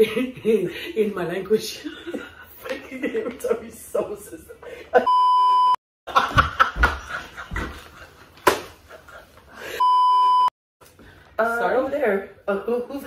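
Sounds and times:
women laughing: 0:00.0 - 0:05.1, 0:06.1 - 0:09.8
electronic bleep tones: 0:05.1 - 0:05.8, 0:09.8 - 0:10.5
sharp slap: 0:08.4 - 0:08.8.

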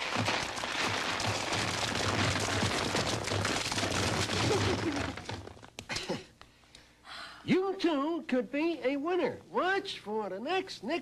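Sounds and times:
slime pouring and splattering: 0:00.0 - 0:05.8.

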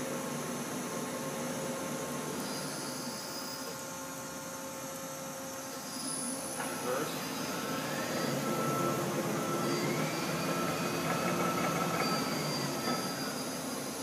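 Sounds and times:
lathe motor whine and hum: 0:00.0 - 0:14.0.

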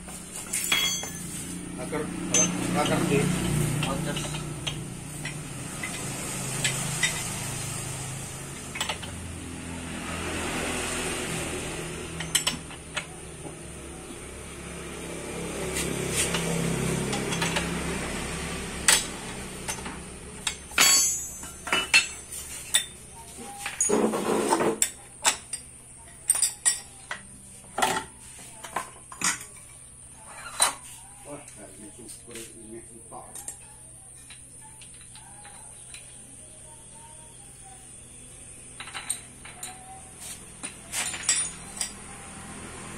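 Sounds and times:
metal tools clanking: 0:00.1 - 0:07.6, 0:11.9 - 0:13.8, 0:15.7 - 0:17.8, 0:18.8 - 0:30.9, 0:40.6 - 0:42.2.

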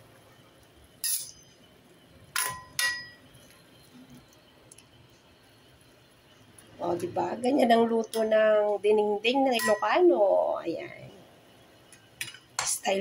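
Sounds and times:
metal utensil clinking on pot: 0:01.0 - 0:01.4, 0:09.6 - 0:09.9.

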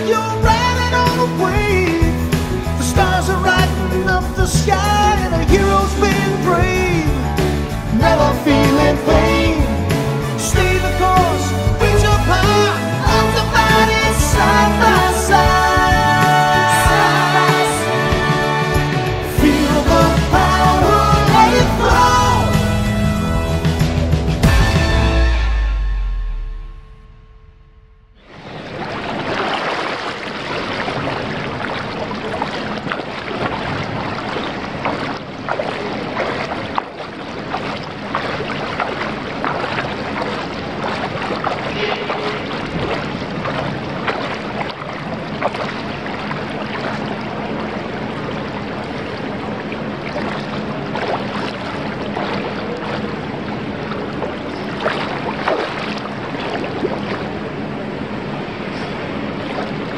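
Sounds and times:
swimmer splashing in water: 0:28.3 - 0:59.9.

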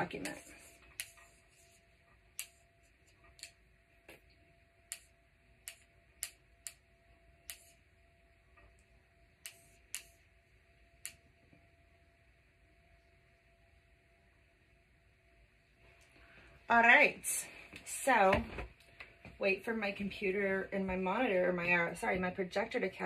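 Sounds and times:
faint hum: 0:00.0 - 0:23.0
computer mouse clicking: 0:00.2 - 0:03.6, 0:04.9 - 0:06.8, 0:07.4 - 0:07.8, 0:08.7 - 0:10.2.

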